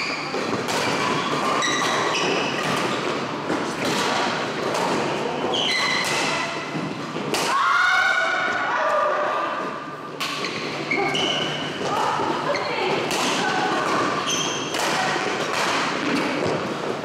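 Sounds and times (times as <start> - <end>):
shoes squeaking on court: 0.0 - 4.0, 5.0 - 6.9, 10.3 - 13.1, 13.9 - 17.0
racket hitting shuttlecock: 0.0 - 7.6, 10.2 - 16.8.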